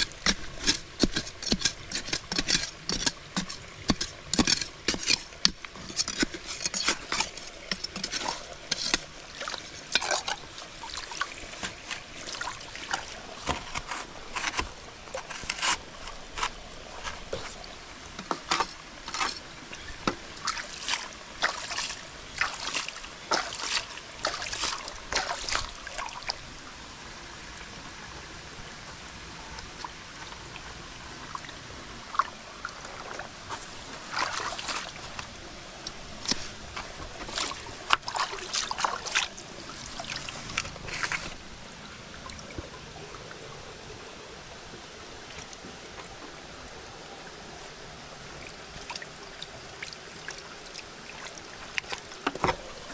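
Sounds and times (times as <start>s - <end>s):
bamboo splashing and knocking in water: 0.0s - 26.4s, 32.9s - 35.3s, 36.2s - 41.4s, 51.1s - 52.9s
shallow stream trickling: 0.0s - 52.9s.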